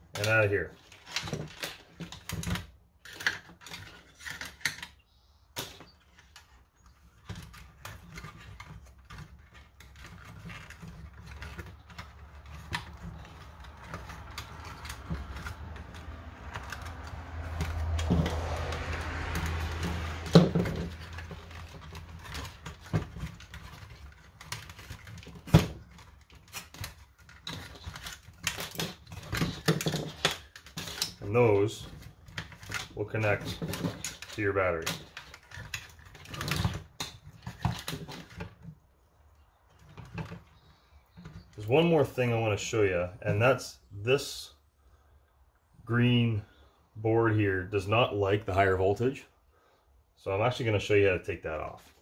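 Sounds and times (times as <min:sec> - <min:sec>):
plastic clicks and knocks: 0:07.2 - 0:31.2.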